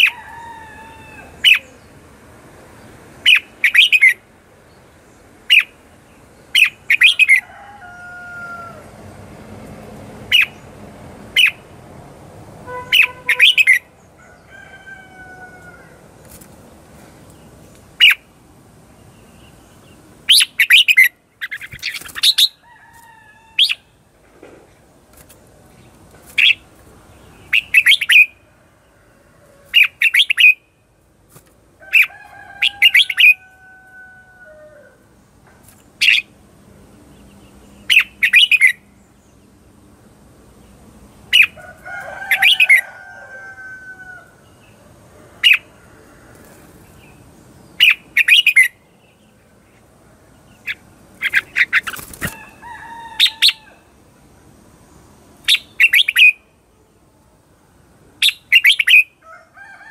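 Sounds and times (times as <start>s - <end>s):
bird singing chirpy phrases: 1.3s - 2.0s, 2.8s - 7.4s, 12.8s - 14.2s, 17.3s - 22.6s, 25.8s - 28.4s, 29.8s - 30.8s, 35.9s - 39.6s, 46.9s - 52.4s, 55.4s - 57.1s, 58.2s - 59.1s.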